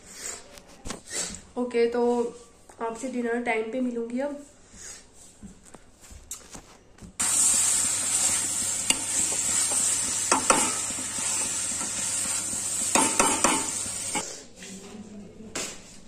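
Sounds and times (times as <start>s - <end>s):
metal spatula scraping a pan: 7.2s - 14.4s
vegetables sizzling in a pan: 7.2s - 14.4s.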